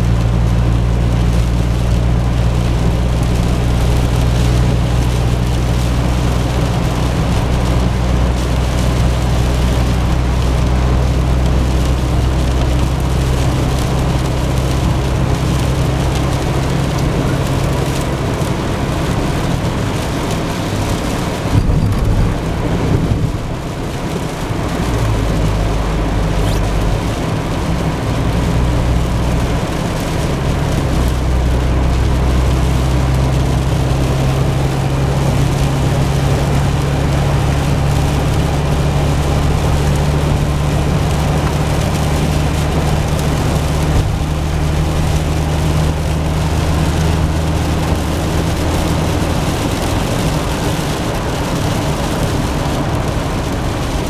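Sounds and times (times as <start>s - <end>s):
rain and tyre spray hiss: 0.0s - 54.0s
road and engine drone: 0.0s - 54.0s
car bumps: 21.5s - 23.4s.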